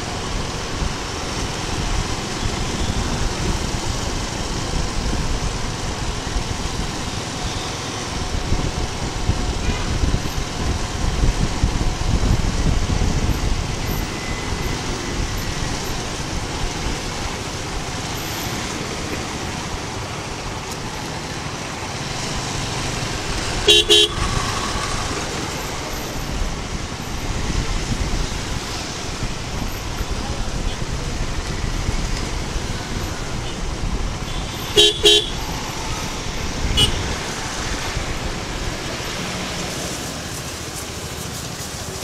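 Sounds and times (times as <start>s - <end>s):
motorcycle riding wind noise: 0.0s - 42.0s
vehicle horn toots: 9.6s - 10.0s, 23.6s - 24.6s, 34.2s - 35.5s, 36.7s - 37.1s.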